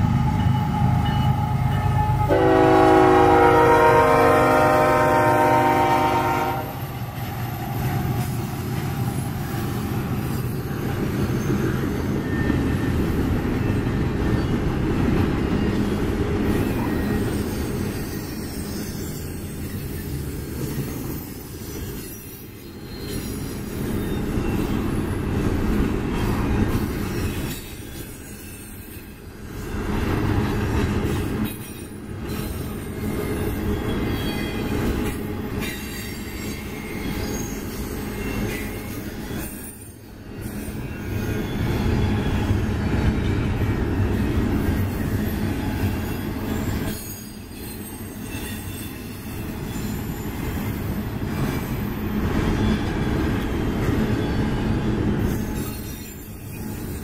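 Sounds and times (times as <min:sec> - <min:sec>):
train wheels rumbling on rail: 0:00.0 - 0:57.0
train horn: 0:00.2 - 0:06.8.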